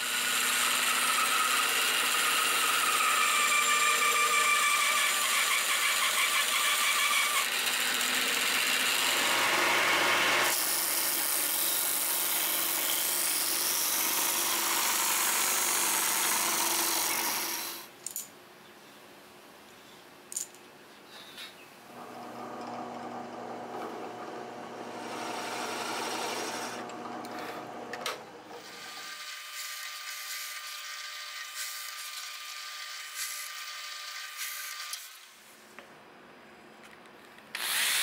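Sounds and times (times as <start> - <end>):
band saw cutting wood: 0.0 - 17.9, 22.0 - 30.6
disc sander sanding wood: 22.0 - 28.0.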